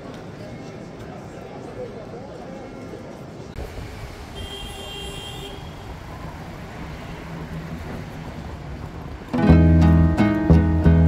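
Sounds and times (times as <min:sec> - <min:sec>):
low traffic rumble: 0:03.0 - 0:11.0.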